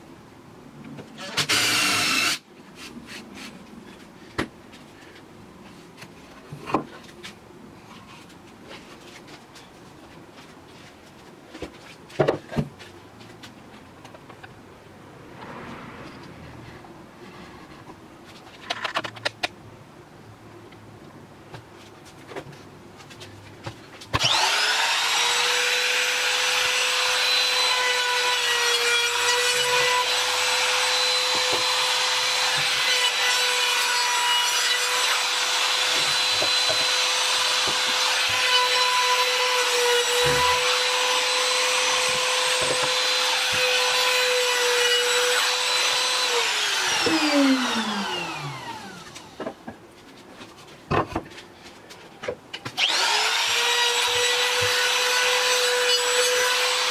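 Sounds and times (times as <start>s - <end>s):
router whining: 1.2s - 2.4s, 24.2s - 49.5s, 52.8s - 56.9s.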